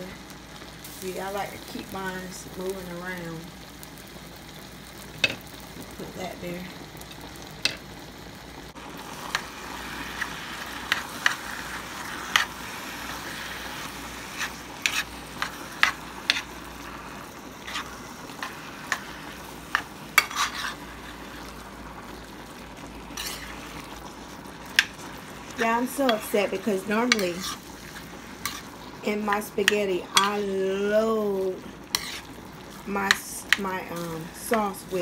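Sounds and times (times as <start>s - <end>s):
meat sizzling in a skillet: 0.0s - 35.0s
utensil scraping pan: 14.3s - 16.5s, 17.6s - 19.1s, 19.7s - 21.2s, 23.1s - 23.8s, 24.7s - 30.6s, 31.8s - 32.3s.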